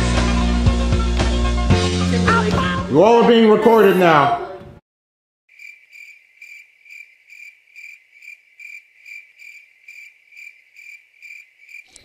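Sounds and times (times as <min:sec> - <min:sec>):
crickets chirping: 0:05.5 - 0:12.0.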